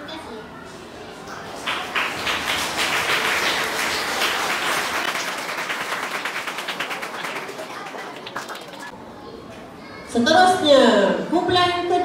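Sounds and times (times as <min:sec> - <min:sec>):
audience applauding: 0:01.6 - 0:08.9.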